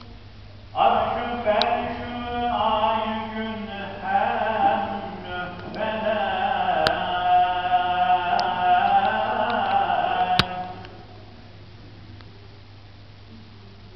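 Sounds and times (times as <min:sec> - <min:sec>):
man chanting religious recitation: 0:00.7 - 0:11.2.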